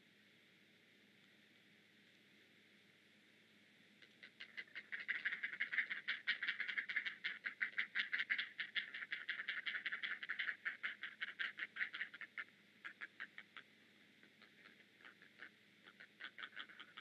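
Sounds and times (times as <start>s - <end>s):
nestlings chattering begging calls: 4.1s - 17.0s.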